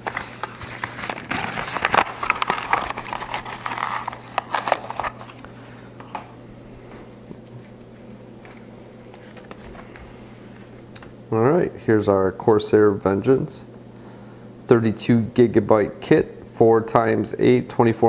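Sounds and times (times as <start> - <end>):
packaging crinkling: 0.0 - 6.1
low steady hum: 0.0 - 18.0.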